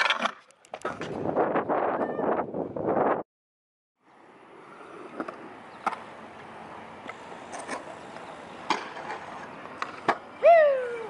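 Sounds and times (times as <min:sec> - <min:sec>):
scooter wheels rolling on concrete: 0:04.2 - 0:11.0.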